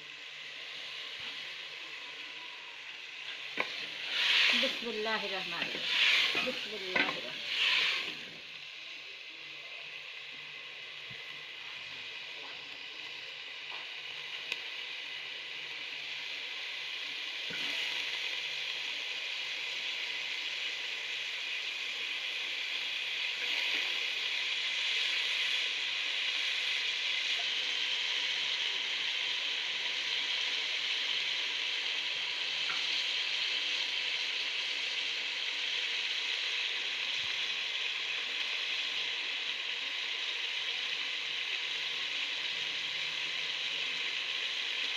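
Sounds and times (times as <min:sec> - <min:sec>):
vegetables sizzling in oil: 0:00.0 - 0:44.9.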